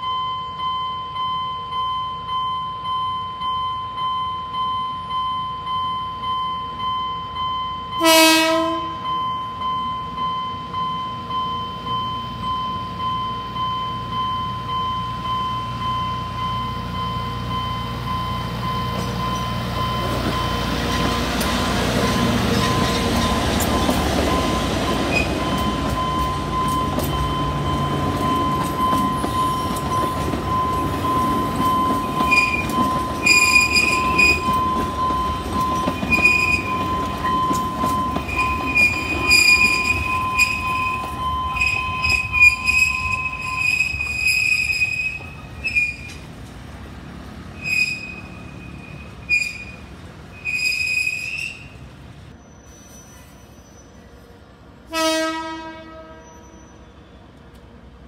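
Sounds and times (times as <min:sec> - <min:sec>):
train rumbling past: 0:06.8 - 0:58.0
train wheels squealing: 0:09.1 - 0:46.3, 0:47.5 - 0:54.5, 0:56.1 - 0:57.7.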